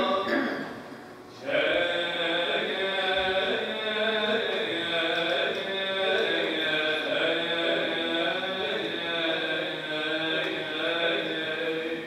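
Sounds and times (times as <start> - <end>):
man chanting a slow hymn: 1.3 - 12.0.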